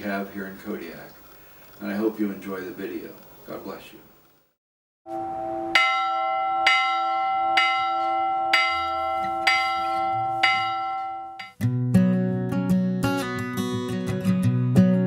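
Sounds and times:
church bell ringing: 0:05.1 - 0:11.6.

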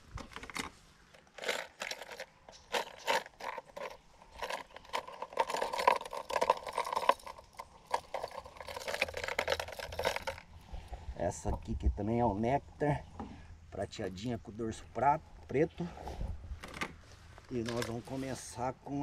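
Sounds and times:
plastic lures clicking and rattling: 0:00.1 - 0:10.6.

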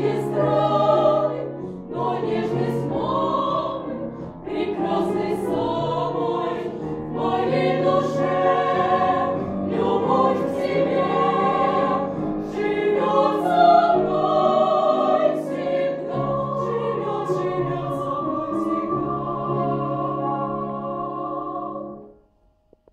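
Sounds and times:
girls singing in harmony: 0:00.0 - 0:22.2.

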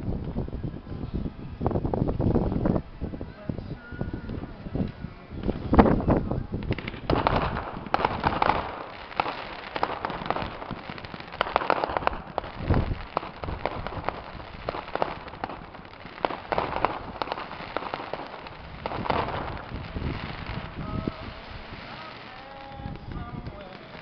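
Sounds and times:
fireworks crackling and popping: 0:04.2 - 0:24.0
fireworks bangs: 0:05.4 - 0:24.0.

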